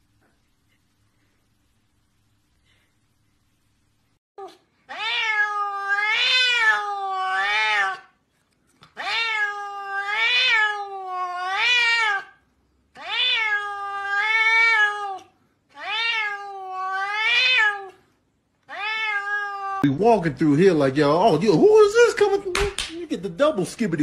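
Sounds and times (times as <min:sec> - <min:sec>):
cat meowing: 0:04.4 - 0:08.1, 0:09.0 - 0:12.4, 0:13.0 - 0:18.0, 0:18.7 - 0:19.9.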